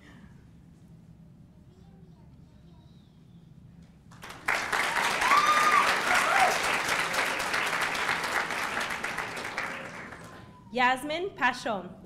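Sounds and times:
audience applauding: 0:04.1 - 0:10.5
audience cheering: 0:04.4 - 0:10.5.

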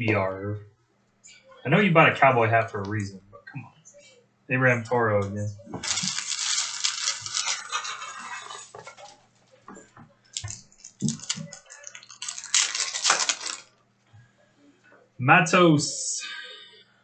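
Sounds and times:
foil wrappers crinkling and tearing: 0:05.8 - 0:09.2, 0:10.3 - 0:13.7.

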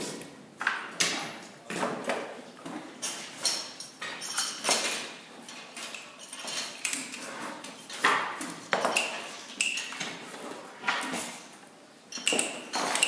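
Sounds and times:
steel pipe and tools clanking: 0:03.0 - 0:10.2, 0:12.1 - 0:13.0.

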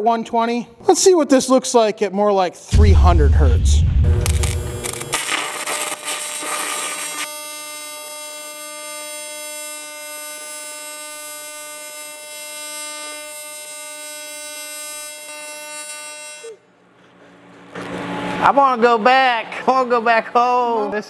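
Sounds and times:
welding arc buzzing: 0:03.9 - 0:16.6.

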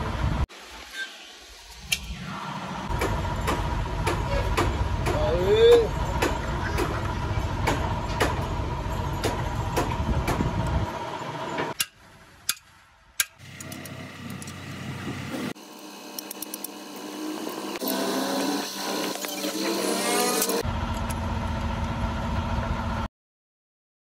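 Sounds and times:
steady low rumble: 0:02.1 - 0:11.1
sharp metal clicks: 0:11.7 - 0:14.6.

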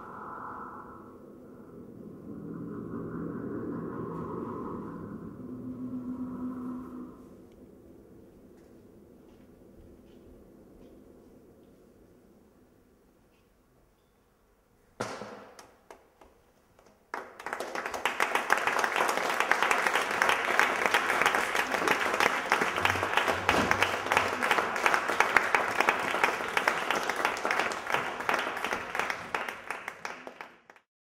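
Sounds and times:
audience applauding: 0:16.8 - 0:30.9.

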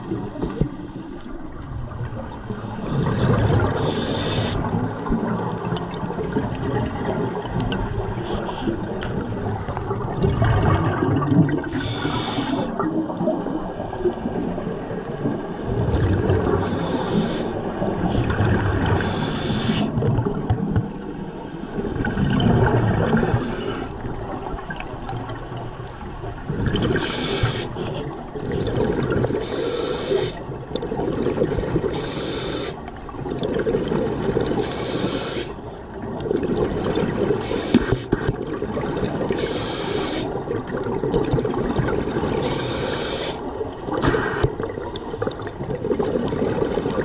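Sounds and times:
gurgle of exhaled bubbles: 0:00.0 - 0:47.0
regulator breathing hiss: 0:03.8 - 0:06.0, 0:11.7 - 0:12.8, 0:16.6 - 0:17.7, 0:19.0 - 0:19.9, 0:27.0 - 0:27.8, 0:29.4 - 0:30.5, 0:31.9 - 0:32.8, 0:34.6 - 0:35.6, 0:37.4 - 0:38.3, 0:39.4 - 0:40.4, 0:42.4 - 0:45.2.

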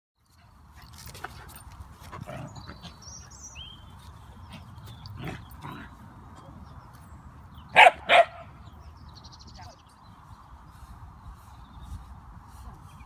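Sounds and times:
dog barking: 0:07.8 - 0:08.5
faint rustling on grass: 0:09.8 - 0:13.0.

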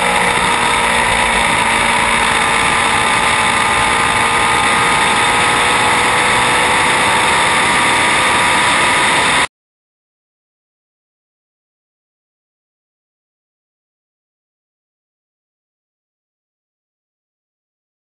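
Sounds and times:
dense rush of noise: 0:00.0 - 0:09.5
race car engine at full throttle: 0:00.0 - 0:09.5.

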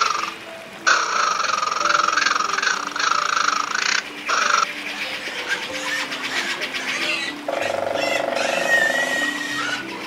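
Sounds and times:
soft background music: 0:00.0 - 0:10.0
raccoon buzzing trill: 0:05.7 - 0:09.9.

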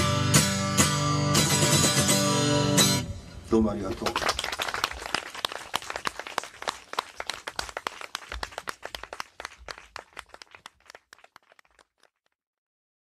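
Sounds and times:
audience applause: 0:03.8 - 0:12.2.

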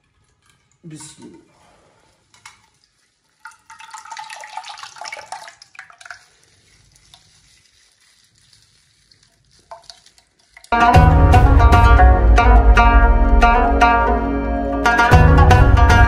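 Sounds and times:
yogurt squelching into metal pot: 0:00.0 - 0:10.8.

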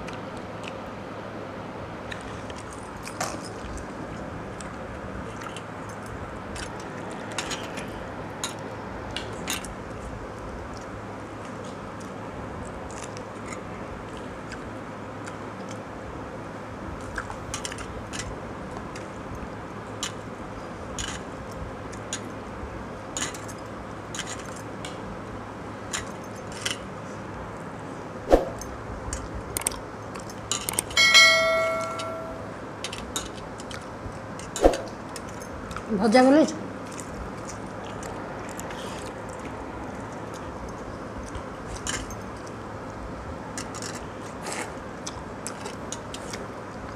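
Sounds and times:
clinks of steel dishes: 0:31.0 - 0:32.5
ringing bell chime: 0:31.0 - 0:32.6
chewing: 0:33.6 - 0:33.9, 0:36.8 - 0:42.0, 0:43.9 - 0:46.9.

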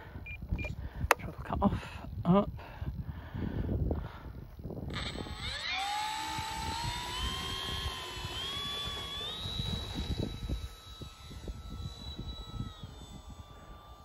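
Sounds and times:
wind rumbling on microphone: 0:00.0 - 0:14.0
model plane motor whine: 0:04.8 - 0:14.0.

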